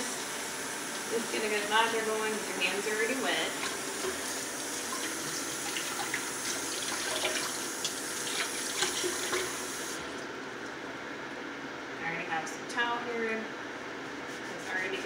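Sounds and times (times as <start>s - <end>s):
faucet running into steel sink: 0.0s - 10.2s
hands washing with small splashes: 3.6s - 10.8s.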